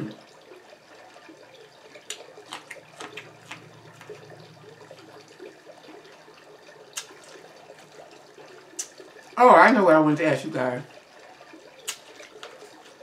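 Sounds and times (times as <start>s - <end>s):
chewing and lip smacking: 1.9s - 6.2s, 6.8s - 8.1s, 8.7s - 9.1s, 11.8s - 13.0s.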